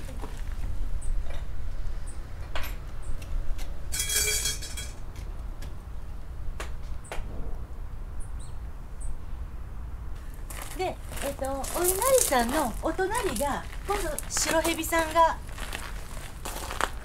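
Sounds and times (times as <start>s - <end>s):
shrine bell jangling: 4.0s - 5.0s
steady low rumble: 7.2s - 17.0s.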